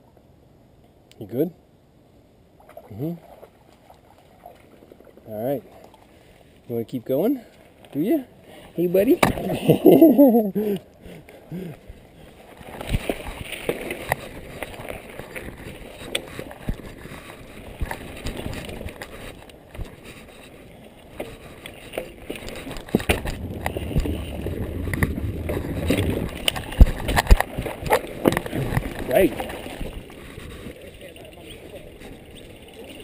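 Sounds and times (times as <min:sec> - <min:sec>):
bike tyres on dirt: 0:11.4 - 0:33.0
bike knocking and rattling: 0:21.1 - 0:30.8.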